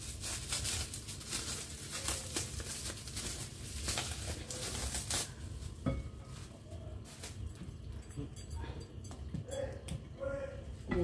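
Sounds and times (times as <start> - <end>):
plastic wrap crinkling: 0.0 - 7.8.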